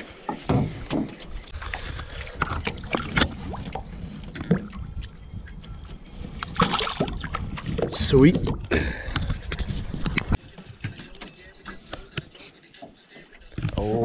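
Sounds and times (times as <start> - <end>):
light water splashing: 1.5 - 8.7
wind rumble on microphone: 3.2 - 10.4.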